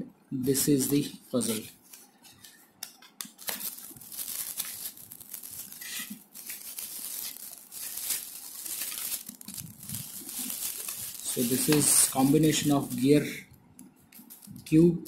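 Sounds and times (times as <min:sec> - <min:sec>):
cardboard and plastic bag rustling: 0:03.4 - 0:13.2.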